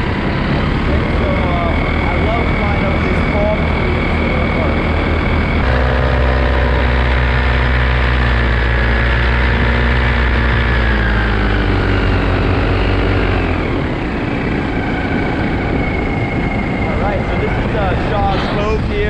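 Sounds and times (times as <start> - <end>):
paramotor engine and propeller: 0.0 - 19.0
wind rush: 10.3 - 19.0.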